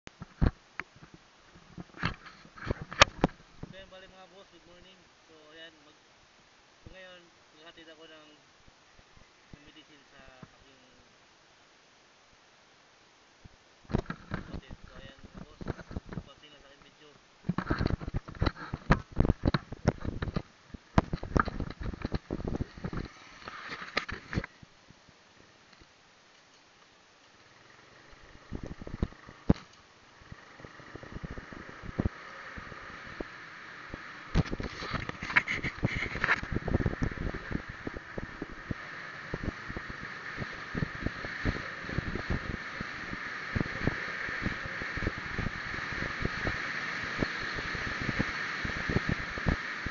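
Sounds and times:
road and engine noise: 0:00.1 - 0:49.9
handheld camera being jostled: 0:00.2 - 0:03.8, 0:13.9 - 0:16.3, 0:17.5 - 0:24.6, 0:34.3 - 0:38.7
wind buffeting microphone: 0:17.5 - 0:24.5, 0:28.3 - 0:29.6, 0:30.2 - 0:33.3, 0:33.9 - 0:49.9.

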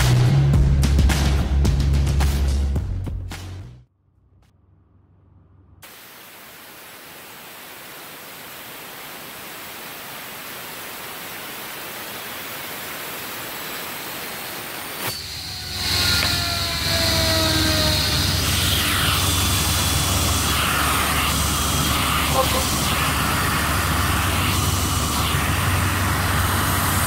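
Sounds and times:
low hum: 0:04.0 - 0:05.8, 0:15.1 - 0:27.0
ball bearings whirring: 0:15.0 - 0:27.0
whines sliding down in pitch: 0:15.1 - 0:26.9.

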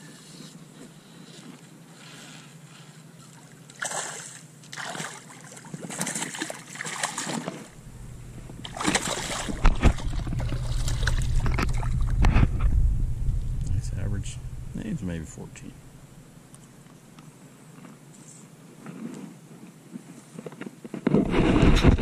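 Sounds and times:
shallow water splashing: 0:03.2 - 0:15.0
low rumble: 0:07.8 - 0:16.5.

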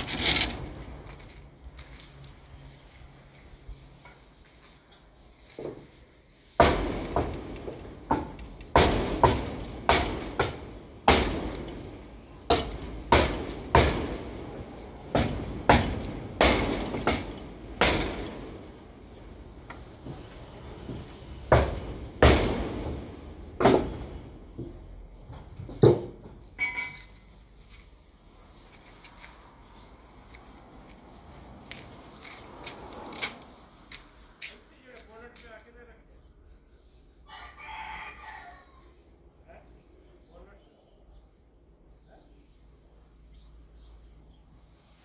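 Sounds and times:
short metallic ring: 0:26.6 - 0:27.3.

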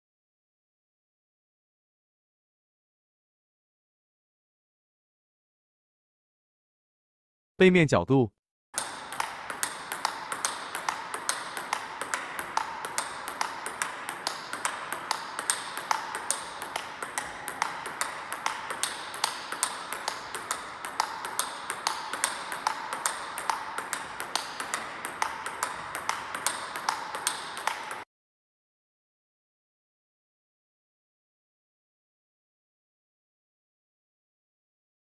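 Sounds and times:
table tennis ball clicking: 0:08.8 - 0:28.0.

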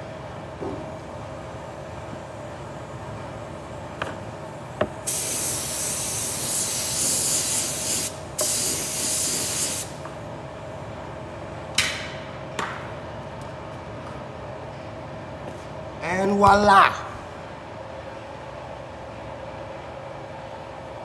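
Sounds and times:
spray gun hissing: 0:05.1 - 0:10.0.

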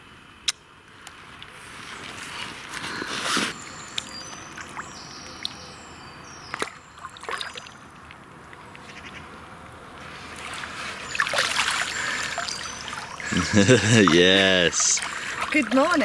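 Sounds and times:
water sloshing around a net: 0:06.5 - 0:07.8, 0:10.1 - 0:16.0
water dripping off a net: 0:10.4 - 0:14.2.

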